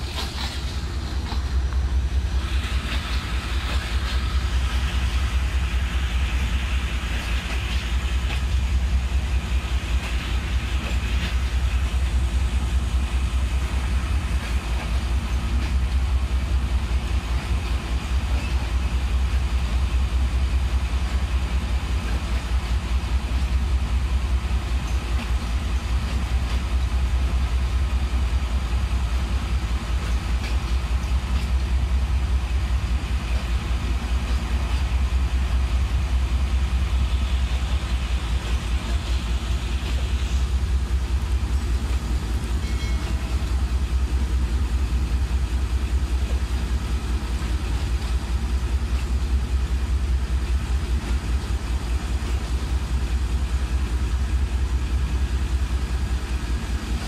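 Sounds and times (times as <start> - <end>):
train coaches rumbling on track: 0.0 - 57.0.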